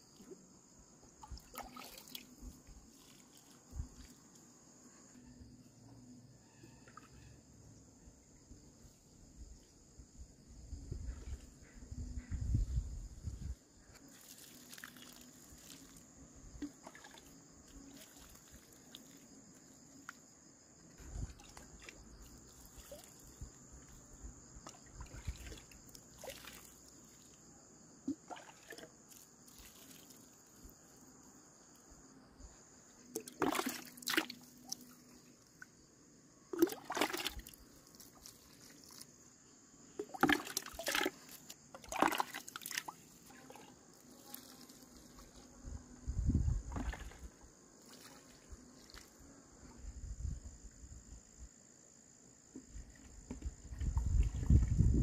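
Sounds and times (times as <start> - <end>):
water sloshing and splashing: 1.1 - 4.4, 14.0 - 19.3, 21.0 - 24.0, 24.6 - 27.4, 28.0 - 30.8, 33.1 - 35.2, 36.5 - 39.1, 40.0 - 45.4, 46.5 - 49.2, 52.8 - 55.0
water trickling onto soil: 1.3 - 4.5, 14.0 - 20.2, 21.2 - 24.1, 25.0 - 27.4, 28.3 - 30.7, 36.5 - 39.2, 40.0 - 45.5, 46.6 - 49.2.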